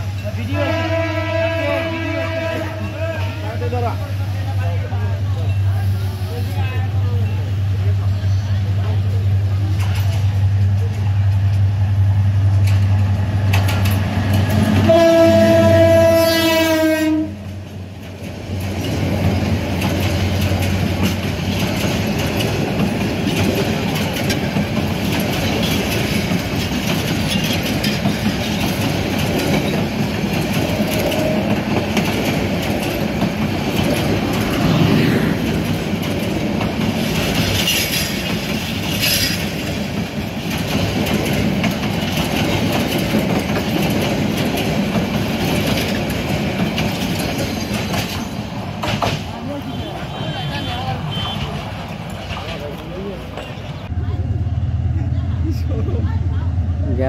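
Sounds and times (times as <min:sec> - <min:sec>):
train coaches rumbling past: 0:00.0 - 0:57.0
locomotive horn: 0:00.5 - 0:03.4, 0:14.8 - 0:17.5, 0:49.6 - 0:51.6
wheels clicking over rail joints: 0:12.5 - 0:16.2, 0:17.6 - 0:35.0, 0:35.6 - 0:49.6, 0:51.0 - 0:53.9.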